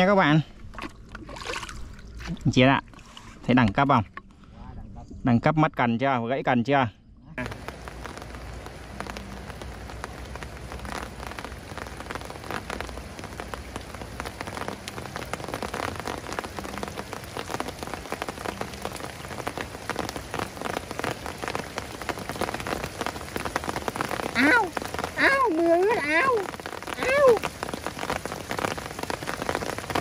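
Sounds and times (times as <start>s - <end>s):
rain falling on a pond: 7.4s - 30.0s.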